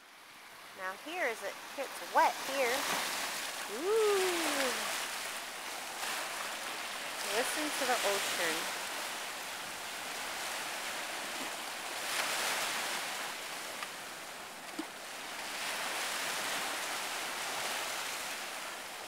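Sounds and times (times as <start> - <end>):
ocean surf breaking over rocks: 0.6 - 19.0.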